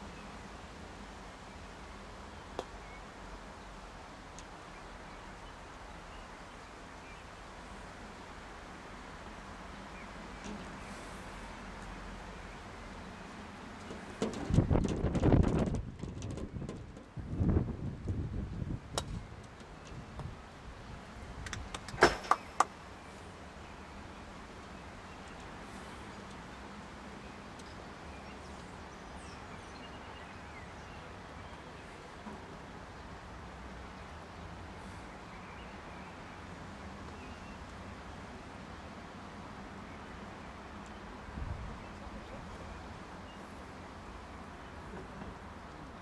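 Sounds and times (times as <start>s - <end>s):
outdoor background noise: 0.0s - 46.0s
faint tick: 4.3s - 4.5s
birds chirping faintly: 9.2s - 46.0s
wind rumble on microphone: 14.1s - 22.0s, 41.2s - 42.4s.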